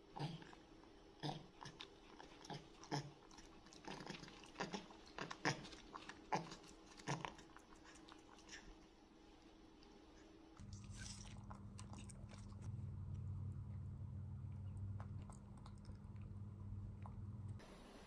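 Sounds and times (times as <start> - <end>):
low steady hum: 0.0 - 18.0
monkey chewing crunchy snack: 1.6 - 8.7, 10.6 - 16.4.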